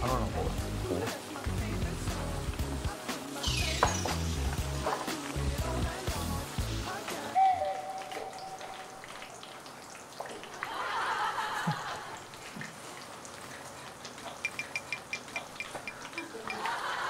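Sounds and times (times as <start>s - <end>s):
food deep-frying in oil: 0.0s - 17.0s.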